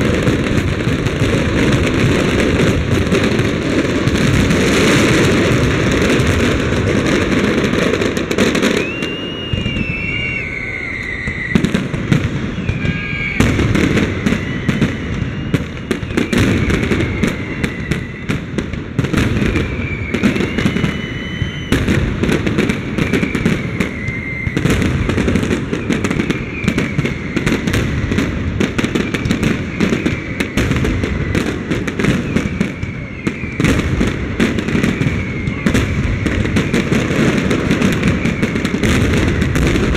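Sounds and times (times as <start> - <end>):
firework whistle gliding in pitch: 0.0 - 39.9
fireworks bursts and crackling: 0.0 - 39.9.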